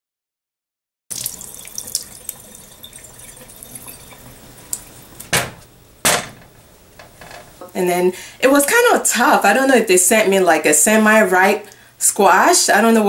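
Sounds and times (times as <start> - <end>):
water splashing in a sink: 1.1 - 5.2.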